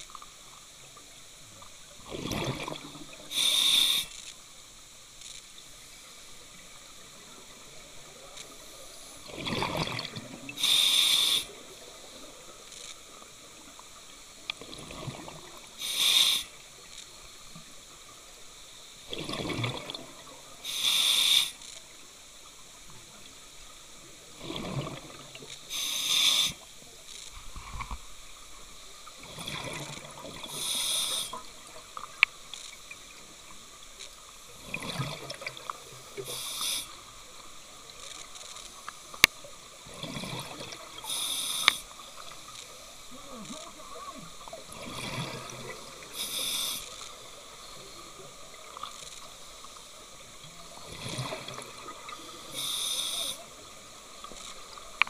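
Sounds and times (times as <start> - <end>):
regulator hiss: 2.8 - 9.3, 10.4 - 14.5, 15.5 - 19.0, 20.4 - 24.3, 25.4 - 27.3, 30.4 - 34.5, 35.7 - 39.3, 40.9 - 44.6, 45.3 - 50.4, 51.9 - 55.0
air and bubbles rushing: 9.3 - 10.3.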